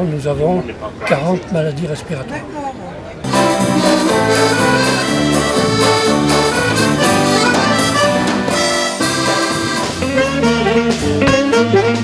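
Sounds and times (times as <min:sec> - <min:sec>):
accordion: 0:03.2 - 0:12.0
live band music: 0:03.2 - 0:12.0.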